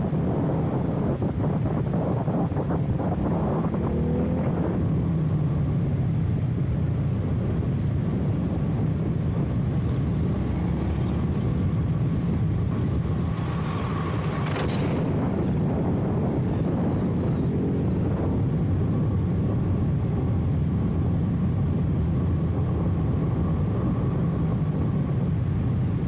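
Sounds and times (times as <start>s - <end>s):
wind rush on microphone: 0.0s - 26.0s
motorcycle engine revving: 2.0s - 19.8s.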